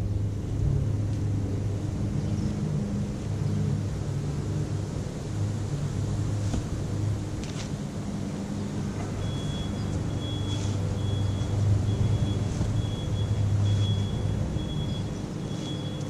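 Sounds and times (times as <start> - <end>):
low engine-like hum: 0.0 - 16.0
faint high chirp: 9.2 - 16.0.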